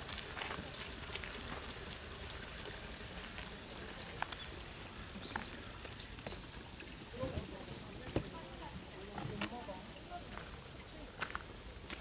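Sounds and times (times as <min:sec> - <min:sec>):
outdoor ambient hiss: 0:00.0 - 0:12.0.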